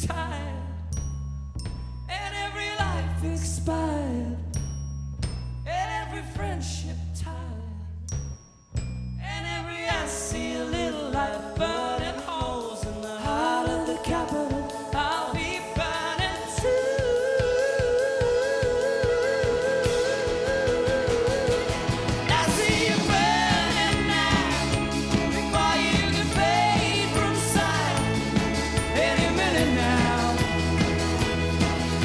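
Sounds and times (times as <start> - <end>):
men singing together: 10.4 - 30.8
guitars with steady beat: 10.4 - 32.0.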